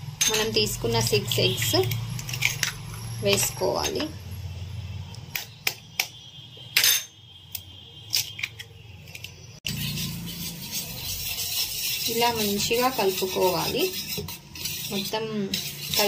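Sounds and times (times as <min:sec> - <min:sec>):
wire whisk scraping a bowl: 0:09.7 - 0:16.0.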